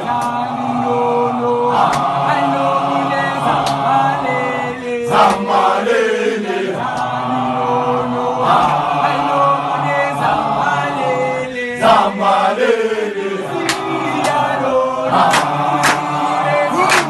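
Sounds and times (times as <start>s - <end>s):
men singing in harmony: 0.0s - 17.0s.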